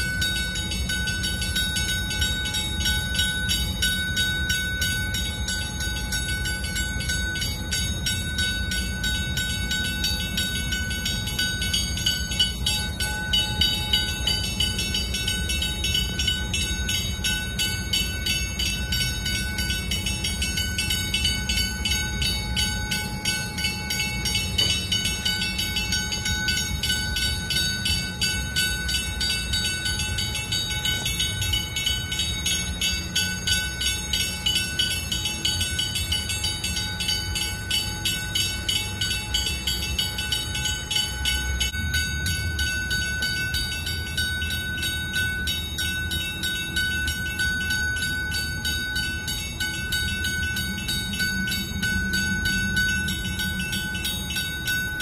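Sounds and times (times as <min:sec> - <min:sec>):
warning bell ringing: 0:00.0 - 0:55.0.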